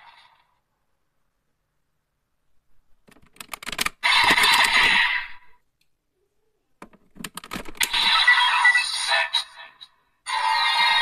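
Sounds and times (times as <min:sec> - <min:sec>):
plastic buckles clicking: 0:03.1 - 0:04.6, 0:06.8 - 0:07.9
toy electronic sound effect: 0:07.8 - 0:09.5.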